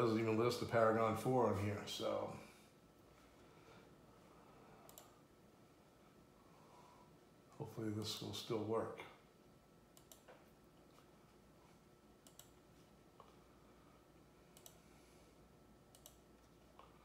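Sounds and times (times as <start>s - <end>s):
computer mouse clicking: 4.9s - 5.2s, 10.0s - 11.0s, 12.2s - 12.6s, 14.5s - 14.8s, 15.9s - 17.0s.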